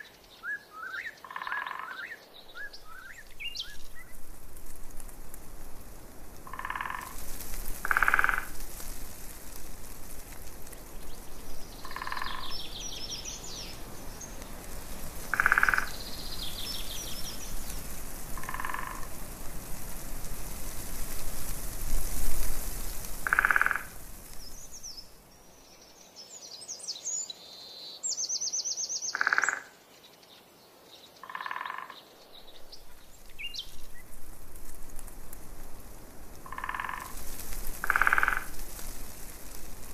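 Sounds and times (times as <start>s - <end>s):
background noise wash: 0.0s - 39.9s
frogs croaking: 0.8s - 3.7s, 6.4s - 8.6s, 11.2s - 14.4s, 15.2s - 19.2s, 23.1s - 24.1s, 29.0s - 29.8s, 31.2s - 32.2s, 36.4s - 38.8s.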